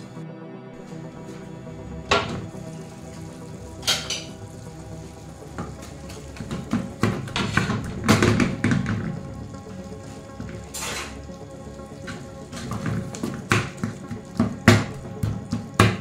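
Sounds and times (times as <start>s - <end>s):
background music: 0.0s - 16.0s
glass lid clanking on saucepan: 3.8s - 4.4s
wooden spoon scraping in pan: 5.5s - 11.3s, 12.0s - 14.5s.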